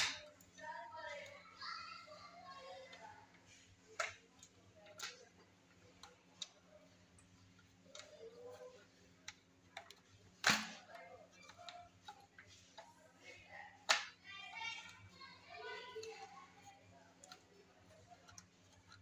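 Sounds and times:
plastic parts clicking and tapping: 0:00.0 - 0:01.4, 0:02.4 - 0:19.0.

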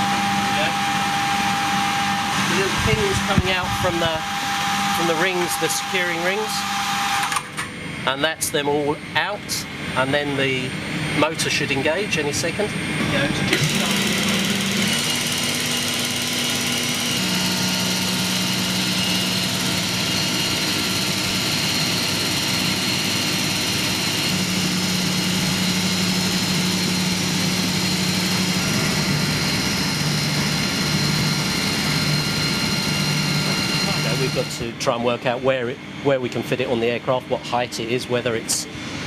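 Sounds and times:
cargo door motor humming: 0:00.0 - 0:07.8, 0:12.2 - 0:35.4
aircraft apron machinery noise: 0:00.0 - 0:39.0.

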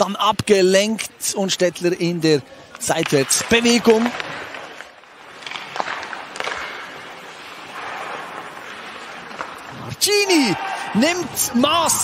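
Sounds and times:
ice rink hiss: 0:04.3 - 0:11.2.

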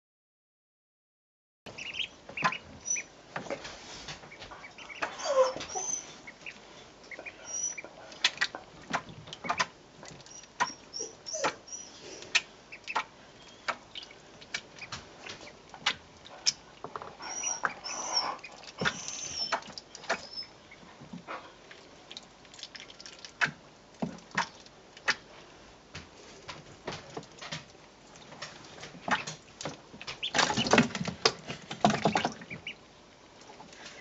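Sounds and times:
ducklings splashing in water: 0:01.7 - 0:05.1, 0:06.2 - 0:16.8, 0:17.6 - 0:25.3, 0:26.4 - 0:34.0
ducklings peeping: 0:01.7 - 0:21.9, 0:28.9 - 0:34.0.

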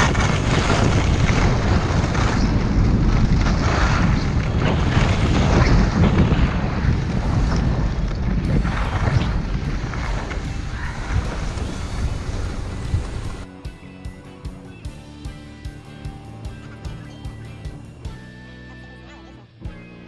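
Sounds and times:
wind buffeting microphone: 0:00.0 - 0:13.5.

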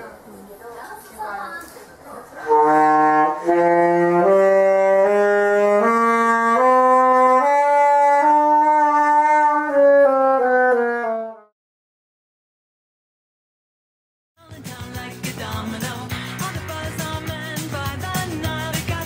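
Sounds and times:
alto saxophone held notes: 0:02.4 - 0:11.5.

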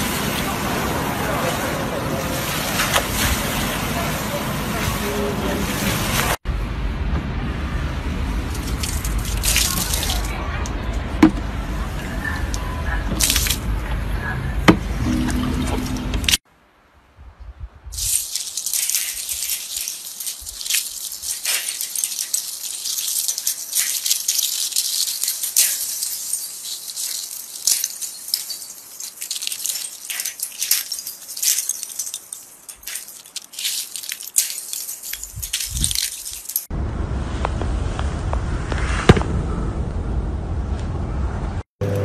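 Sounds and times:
ice crackling and crunching: 0:08.5 - 0:10.4, 0:12.4 - 0:13.7, 0:18.0 - 0:36.7.

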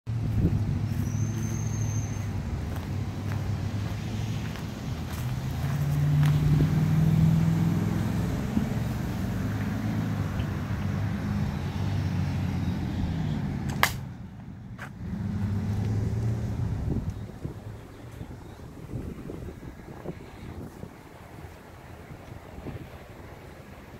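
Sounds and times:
road traffic rumble: 0:00.1 - 0:23.9
sharp click: 0:13.7 - 0:14.0.

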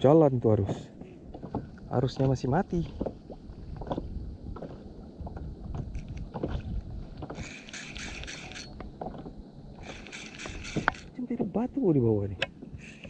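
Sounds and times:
wind on microphone: 0:00.0 - 0:11.8
water lapping against kayak: 0:00.0 - 0:13.0
rod and reel knocks: 0:03.8 - 0:11.1
rasping hiss: 0:07.3 - 0:08.7, 0:09.8 - 0:11.1.

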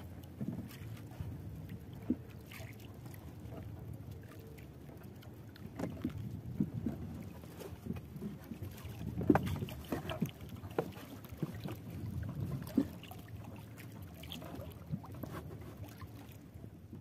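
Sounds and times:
water sloshing and splashing: 0:00.0 - 0:17.0
knocks against wooden hull: 0:09.1 - 0:11.8.

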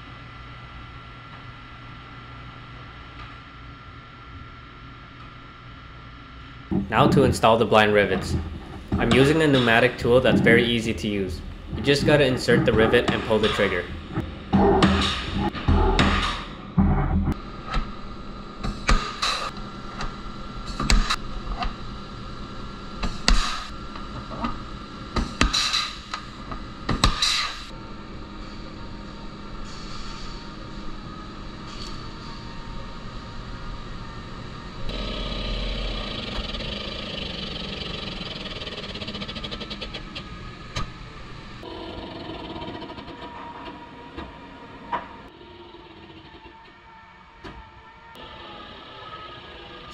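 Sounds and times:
fast rattle: 0:34.9 - 0:40.3.

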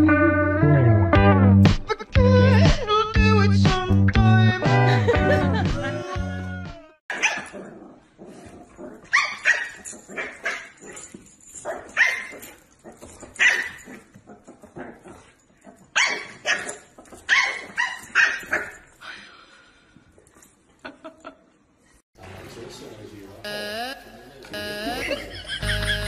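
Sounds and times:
dog barking: 0:07.1 - 0:07.6, 0:09.1 - 0:10.8, 0:13.4 - 0:13.9, 0:16.0 - 0:18.8.

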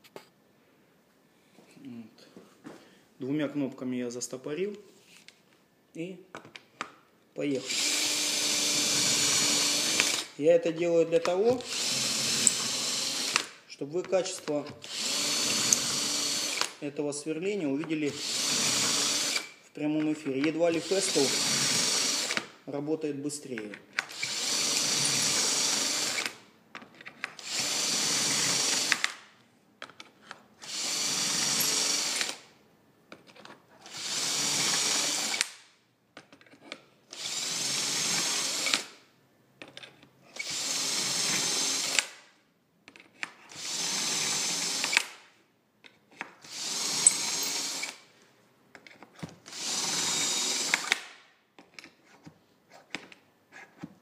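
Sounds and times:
cordless drill boring into wood: 0:07.6 - 0:10.4, 0:11.2 - 0:13.6, 0:14.8 - 0:16.8, 0:18.1 - 0:19.6, 0:20.7 - 0:22.5, 0:24.0 - 0:26.4, 0:27.4 - 0:29.2, 0:30.6 - 0:32.5, 0:33.9 - 0:35.6, 0:37.1 - 0:39.0, 0:40.4 - 0:42.2, 0:43.5 - 0:45.2, 0:46.4 - 0:48.0, 0:49.4 - 0:51.2.

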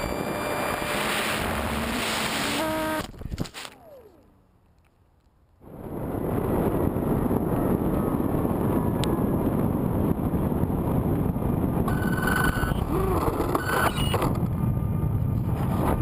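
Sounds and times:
high steady tones: 0:00.0 - 0:03.1
wind rushing over microphone: 0:05.6 - 0:16.0.

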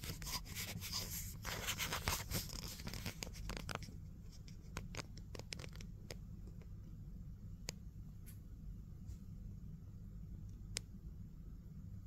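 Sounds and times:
rustling and crackling clicks: 0:00.0 - 0:06.8.

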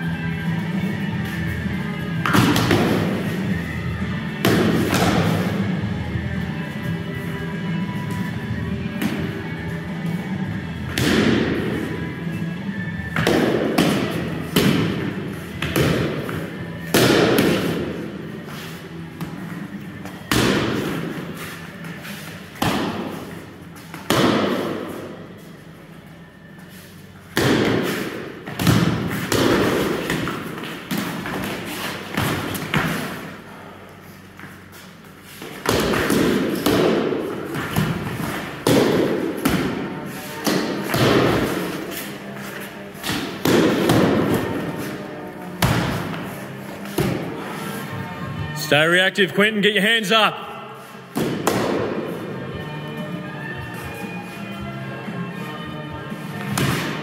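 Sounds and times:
training swords striking shields: 0:02.1 - 0:03.4, 0:04.4 - 0:05.7, 0:10.9 - 0:11.8, 0:13.0 - 0:18.2, 0:20.0 - 0:21.4, 0:22.4 - 0:25.1, 0:27.3 - 0:33.2, 0:35.4 - 0:42.2, 0:43.0 - 0:47.4, 0:51.1 - 0:52.3, 0:56.4 - 0:57.0
training swords striking with thuds: 0:04.4 - 0:05.5, 0:10.9 - 0:11.6, 0:16.8 - 0:17.8, 0:20.3 - 0:20.9, 0:22.6 - 0:23.1, 0:24.0 - 0:24.9, 0:27.4 - 0:30.3, 0:38.6 - 0:39.8, 0:43.0 - 0:44.7, 0:51.1 - 0:52.1.

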